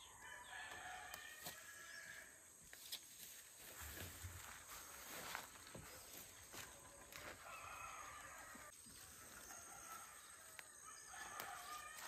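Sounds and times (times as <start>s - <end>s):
rooster crowing faintly: 6.5s - 8.8s.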